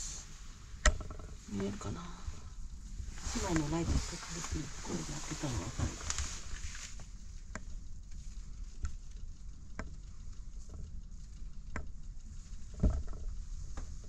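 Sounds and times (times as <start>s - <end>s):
low rumble: 0.0s - 14.0s
faint clicks: 5.8s - 14.0s.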